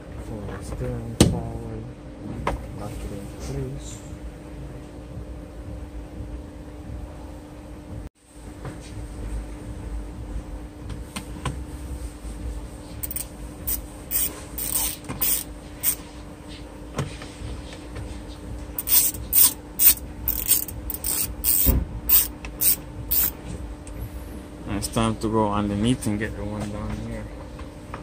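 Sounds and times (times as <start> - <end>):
steady low hum: 0.0 - 28.0
screwdriver scratching on plastic: 13.0 - 16.0, 18.8 - 23.3.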